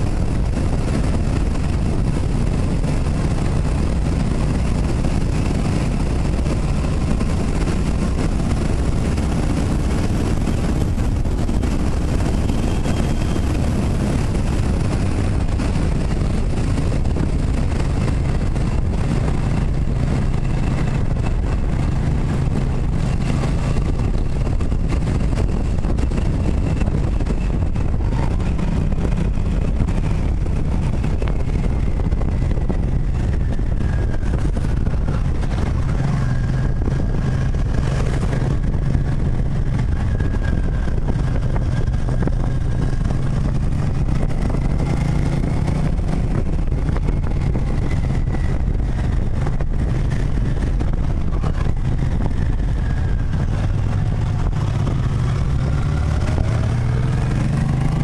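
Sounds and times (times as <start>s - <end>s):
motorcycle engine running: 0.0s - 58.0s
wind rumble on microphone: 0.0s - 58.0s.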